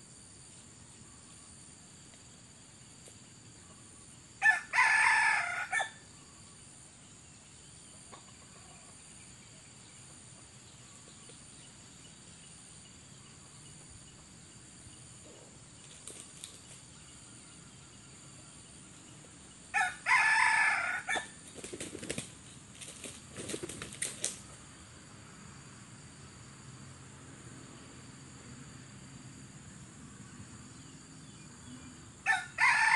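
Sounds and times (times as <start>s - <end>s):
rooster crowing: 4.4s - 6.0s, 19.7s - 21.4s, 32.2s - 32.9s
wings flapping and rustling: 15.8s - 16.9s, 21.3s - 24.6s.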